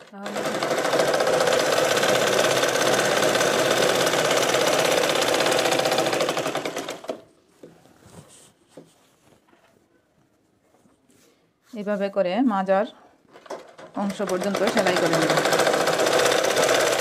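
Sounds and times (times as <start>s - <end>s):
sewing machine running: 0.0s - 7.3s, 13.4s - 17.0s.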